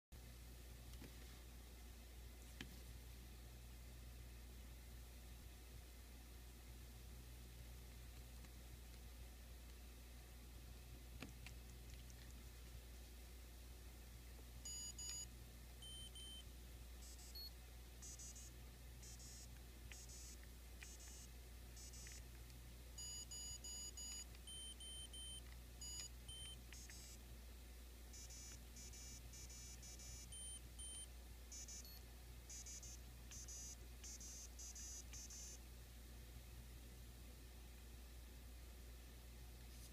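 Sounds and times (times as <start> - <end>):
short electronic beeps: 28.2 - 35.6.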